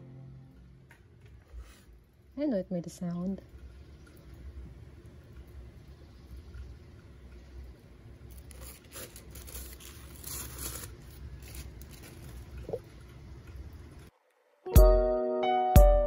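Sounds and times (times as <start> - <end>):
low room hum: 0.0 - 15.3
paper sheet peeling and rustling: 8.3 - 12.6.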